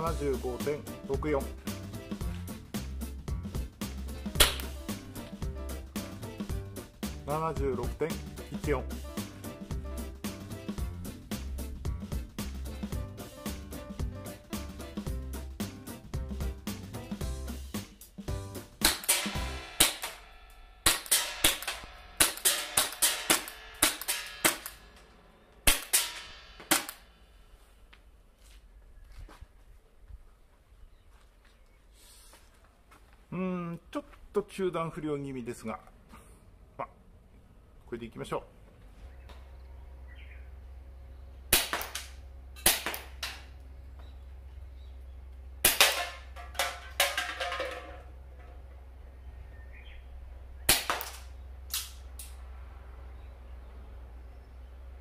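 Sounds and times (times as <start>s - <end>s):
airsoft pistol shots: 4.4s - 4.8s, 18.8s - 24.8s, 25.6s - 27.1s, 41.5s - 43.5s, 45.6s - 46.3s, 50.7s - 52.0s.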